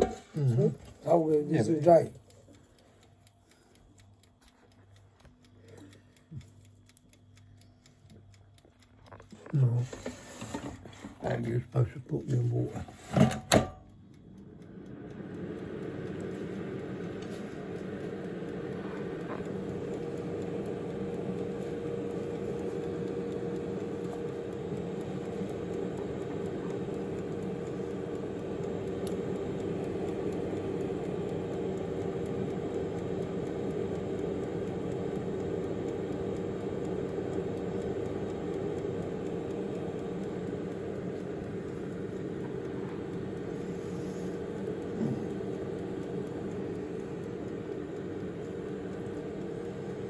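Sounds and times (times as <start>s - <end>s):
air fryer fan humming: 0.0s - 50.0s.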